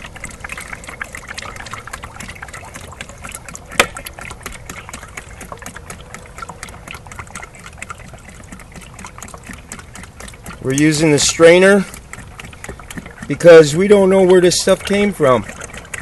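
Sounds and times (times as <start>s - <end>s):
fluid trickling: 0.0s - 16.0s.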